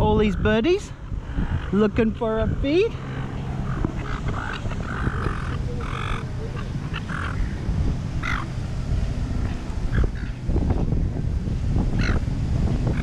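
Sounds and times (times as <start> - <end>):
wind rumble on microphone: 0.0 - 13.0
gulls squawking: 1.4 - 8.7, 9.4 - 10.4, 12.0 - 13.0.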